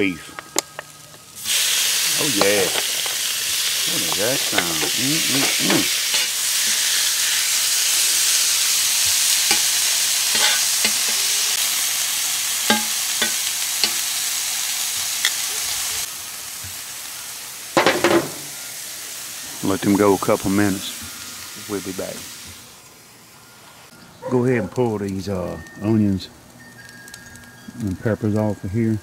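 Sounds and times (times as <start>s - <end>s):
beef sizzling on griddle: 0.0s - 24.0s
metal tongs clicking and scraping: 4.0s - 6.8s, 10.3s - 11.3s.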